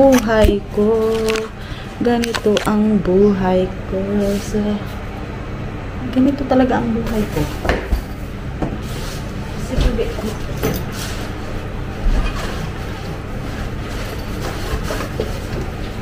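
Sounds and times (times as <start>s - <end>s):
bags and packets handled: 0.0s - 2.8s.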